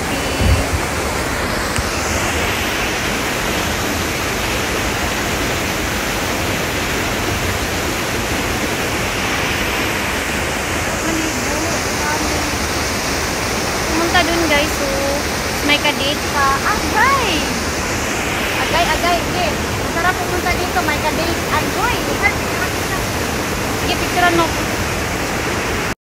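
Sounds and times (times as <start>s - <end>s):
waterfall rushing: 0.0s - 26.0s
low thump: 0.4s - 1.1s.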